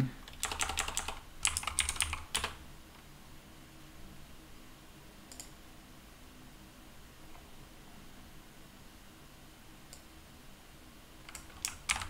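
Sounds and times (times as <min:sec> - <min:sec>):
fast typing on keyboard: 0:00.2 - 0:02.6, 0:11.3 - 0:12.0.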